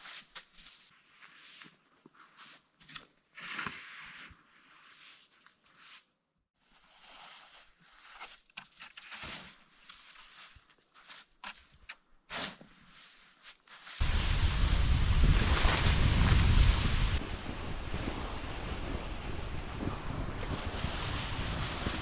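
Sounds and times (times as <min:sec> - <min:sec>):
snow shovel scraping snow: 0:12.3 - 0:17.2, 0:19.9 - 0:22.0.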